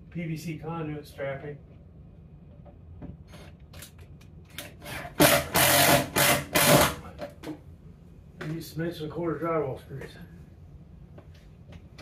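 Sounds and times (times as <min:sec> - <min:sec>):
screw driven into wood: 0:04.5 - 0:07.0.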